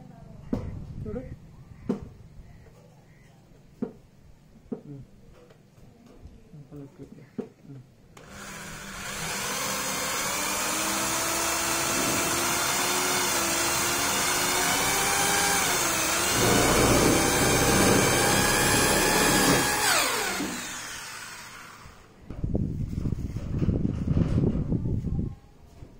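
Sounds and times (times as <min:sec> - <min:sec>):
electric drill motor whine: 0:08.2 - 0:22.1
screw grinding into metal: 0:08.3 - 0:21.9.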